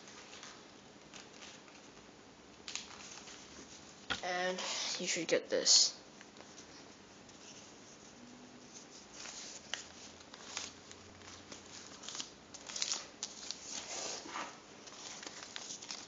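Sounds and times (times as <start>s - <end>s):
paper rustling and crinkling: 0.0s - 2.1s, 2.7s - 3.9s, 8.7s - 16.0s.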